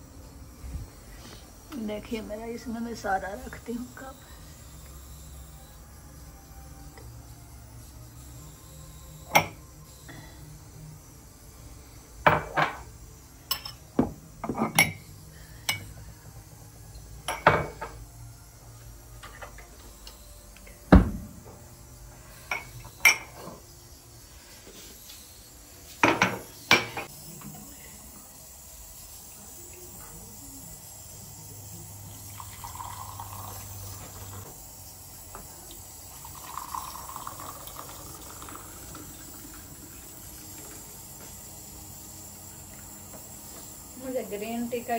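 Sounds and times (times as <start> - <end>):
ceramic mugs clinking: 9.3 - 9.6, 12.2 - 12.9, 13.5 - 15.9, 17.2 - 18.0, 22.5 - 23.6, 26.0 - 27.1, 32.4 - 33.7, 36.2 - 40.0
tea pouring through strainer: 31.8 - 41.4.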